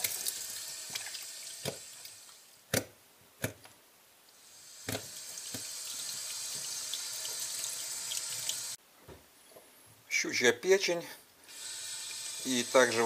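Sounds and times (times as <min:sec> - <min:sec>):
water running over fish: 0:04.8 - 0:08.8.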